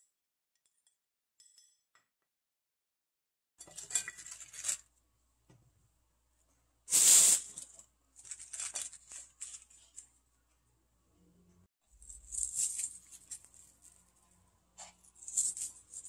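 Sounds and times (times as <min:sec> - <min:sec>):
chives rustling against glass bowl: 0:03.6 - 0:04.9, 0:07.5 - 0:10.2, 0:11.9 - 0:16.0.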